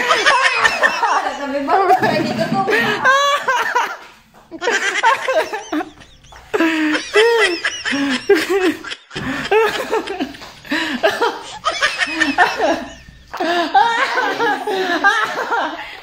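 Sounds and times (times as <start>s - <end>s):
man laughing hard: 4.6s - 15.6s.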